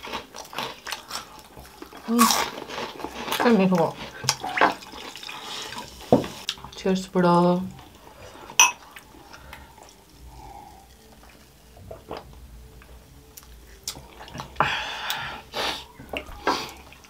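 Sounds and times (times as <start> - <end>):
glasses clinking: 8.6 - 8.8.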